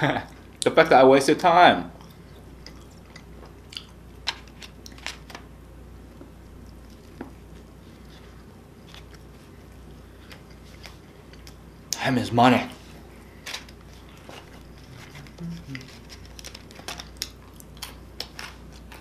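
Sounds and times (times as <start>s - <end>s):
person chewing food: 2.0s - 5.2s, 6.1s - 12.0s, 13.0s - 19.0s.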